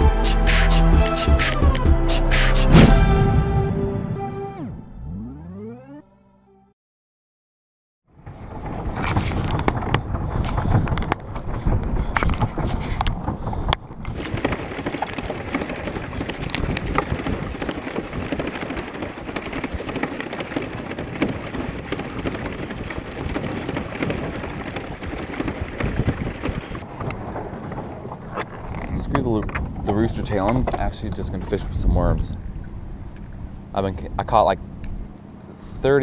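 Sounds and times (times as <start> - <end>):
wind buffeting microphone: 8.2 - 35.2
water splashing and churning: 14.1 - 28.9.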